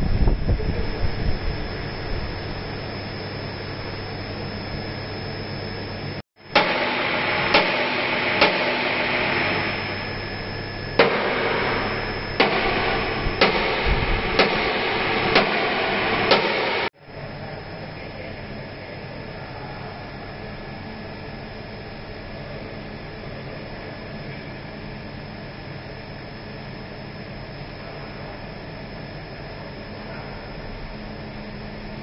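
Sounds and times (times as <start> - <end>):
steady workshop hum: 0.0 - 32.0
sharp knocks: 6.5 - 9.9, 11.0 - 16.9
hissing noise: 6.5 - 16.9.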